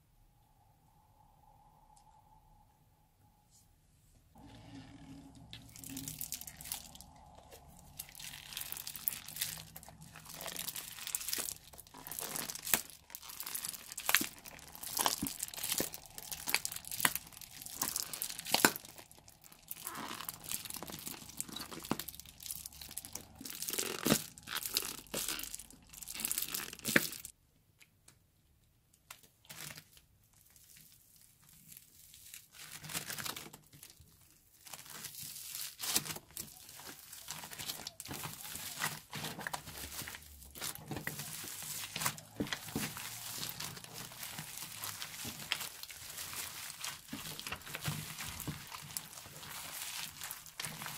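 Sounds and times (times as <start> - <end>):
foam beads crunching: 4.4 - 27.3, 34.6 - 50.9
slime crackling and squelching: 4.4 - 27.4, 29.1 - 50.9.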